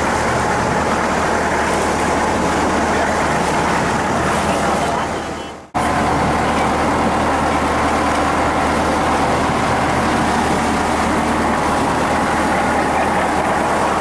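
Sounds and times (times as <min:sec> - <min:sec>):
boat engine running: 0:00.0 - 0:14.0
water rushing along hull: 0:00.0 - 0:14.0.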